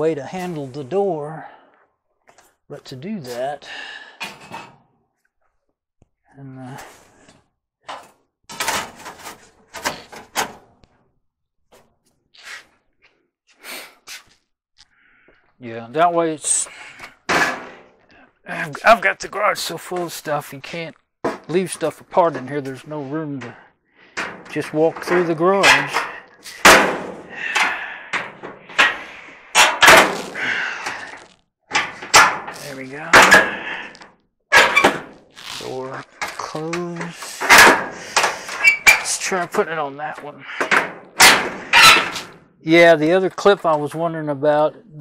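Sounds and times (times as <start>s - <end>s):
sheet-metal clunks and knocks: 7.9s - 10.7s, 17.3s - 17.9s, 24.2s - 29.0s, 31.7s - 33.7s, 37.5s - 39.2s, 40.6s - 42.3s.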